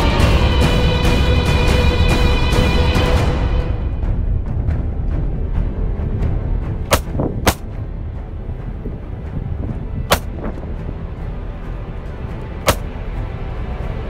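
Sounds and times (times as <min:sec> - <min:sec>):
music: 0:00.0 - 0:14.0
handgun shots: 0:06.9 - 0:07.6, 0:12.7 - 0:12.9.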